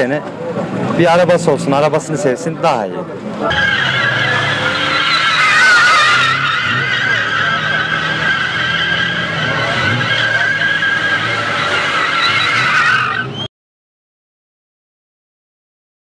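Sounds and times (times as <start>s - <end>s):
car engine running: 0.3s - 13.4s
tyres squealing: 3.3s - 13.5s.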